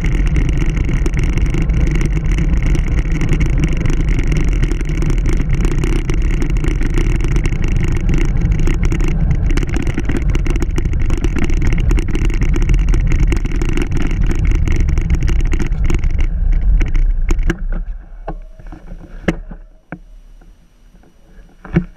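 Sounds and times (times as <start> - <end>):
wind buffeting microphone: 0.0 - 19.8
bike rolling rumble: 0.0 - 21.9
sharp clicks and knocks: 0.0 - 21.9.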